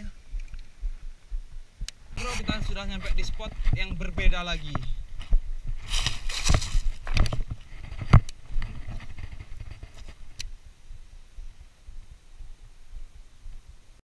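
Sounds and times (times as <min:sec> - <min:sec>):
rustling over dry leaves and stones: 0:02.2 - 0:13.1.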